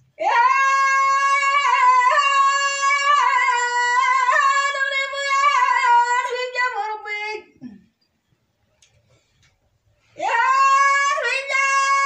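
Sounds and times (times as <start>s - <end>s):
woman singing unaccompanied: 0.2s - 7.6s, 10.2s - 12.0s.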